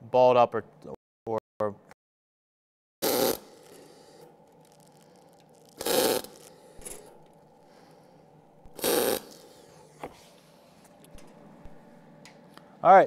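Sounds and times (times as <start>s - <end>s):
welding arc crackle: 3.0s - 6.6s, 8.8s - 9.4s.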